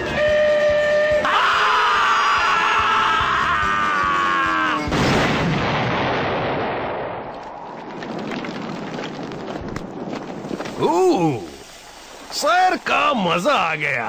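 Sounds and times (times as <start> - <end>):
cartoon characters screaming: 1.2 - 4.9
loud crash boom: 4.9 - 7.3
faint crackles: 7.2 - 14.0.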